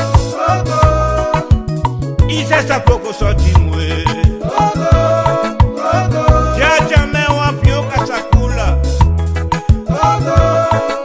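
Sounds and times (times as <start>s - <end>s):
bass line: 0.7s - 5.3s, 6.1s - 10.6s
steady drum beat: 2.3s - 5.8s.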